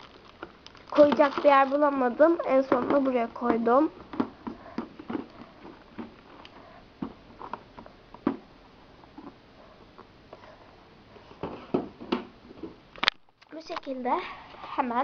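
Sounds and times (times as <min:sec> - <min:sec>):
small objects tapping and knocking: 0:00.0 - 0:06.3.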